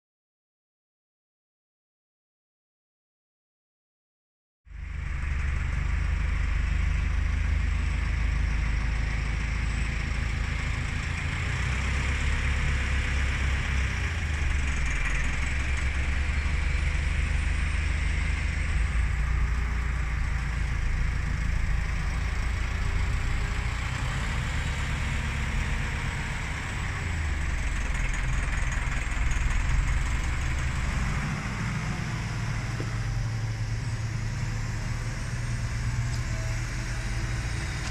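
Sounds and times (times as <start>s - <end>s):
tractor engine droning: 4.7s - 37.9s.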